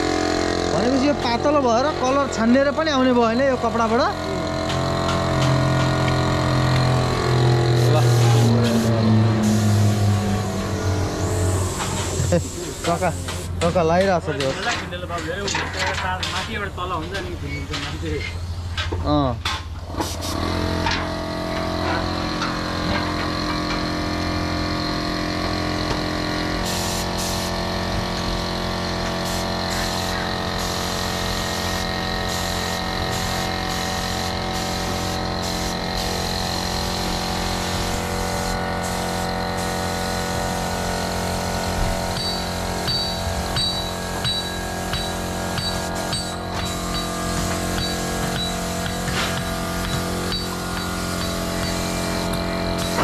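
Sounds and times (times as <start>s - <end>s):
air compressor running: 0.0s - 14.5s, 16.5s - 53.0s
spray gun hissing: 6.5s - 13.6s, 20.0s - 20.7s, 26.5s - 53.0s.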